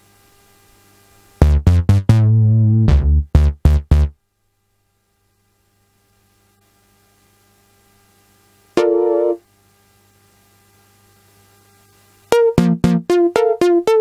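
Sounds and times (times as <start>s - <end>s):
synth bass notes: 1.4s - 4.1s, 12.3s - 14.0s.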